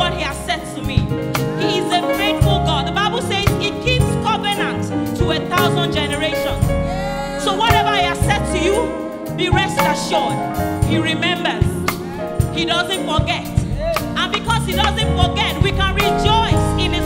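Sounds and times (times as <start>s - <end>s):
gospel band playing: 0.0s - 17.0s
person singing: 6.3s - 12.5s.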